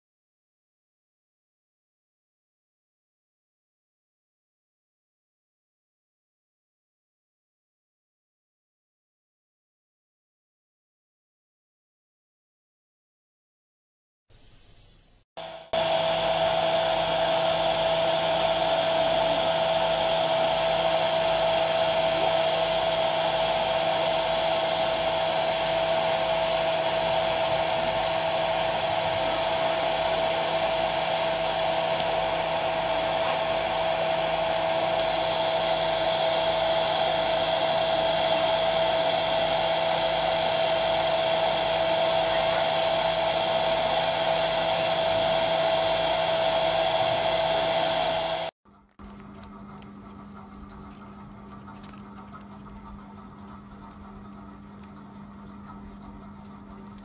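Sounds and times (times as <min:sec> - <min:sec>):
hair dryer running: 0:15.4 - 0:50.3.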